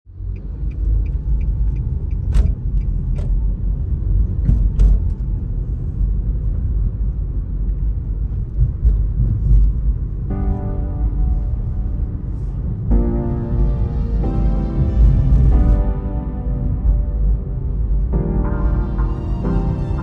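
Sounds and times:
car road and engine rumble: 0:00.1 - 0:20.0
piano music: 0:10.0 - 0:20.0.

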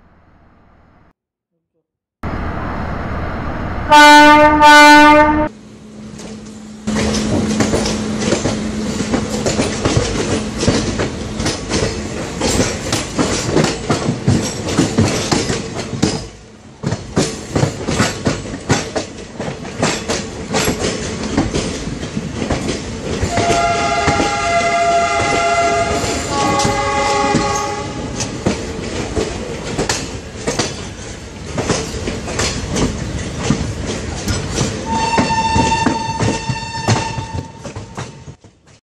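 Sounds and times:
two-tone train horn: 0:03.8 - 0:05.5, 0:23.3 - 0:28.2, 0:34.8 - 0:38.2.

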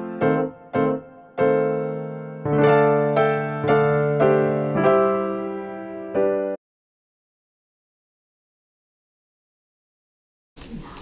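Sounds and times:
electric piano chords: 0:00.0 - 0:06.6.

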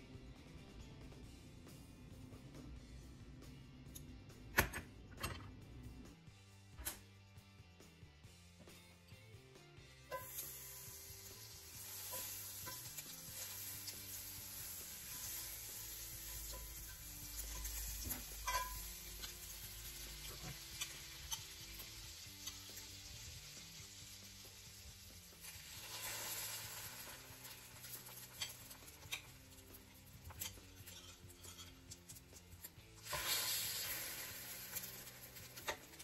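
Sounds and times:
butter sizzling in a skillet: 0:10.1 - 0:36.0
metal tongs clicking against pan: 0:16.2 - 0:22.9, 0:27.4 - 0:34.0.

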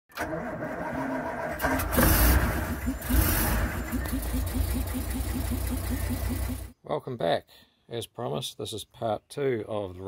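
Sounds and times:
vehicle engine starting and idling: 0:00.1 - 0:06.8.

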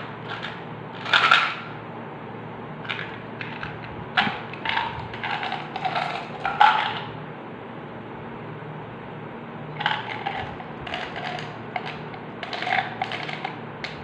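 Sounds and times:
gum pellets rattling into palm: 0:09.8 - 0:13.6.

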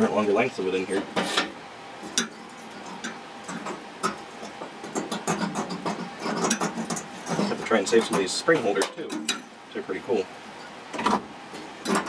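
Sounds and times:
clicks and clinks of metal fittings: 0:06.4 - 0:09.4.

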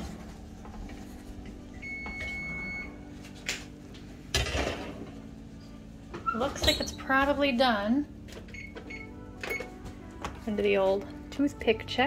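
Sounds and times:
oven timer beeping: 0:01.7 - 0:03.0.

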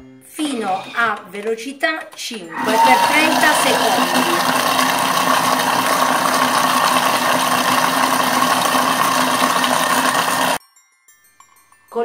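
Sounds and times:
kitchen mixer running: 0:02.5 - 0:10.6.

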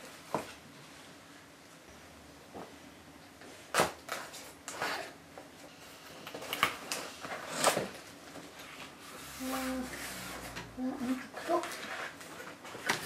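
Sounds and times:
tape and cardboard ripping: 0:06.2 - 0:08.0.

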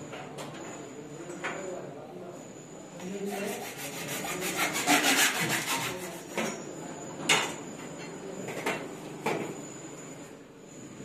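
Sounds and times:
hacksaw cutting plastic pipe: 0:03.4 - 0:06.1.

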